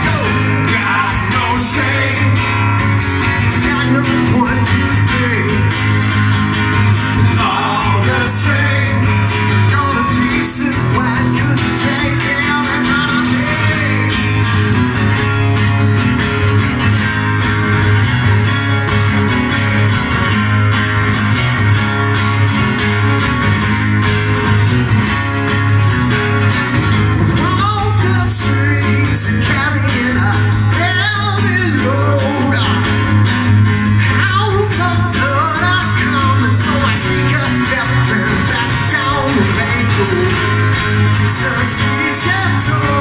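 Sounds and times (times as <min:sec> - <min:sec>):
male lead vocal: 0:00.0 - 0:14.7, 0:27.2 - 0:43.0
live rock guitars: 0:00.0 - 0:43.0.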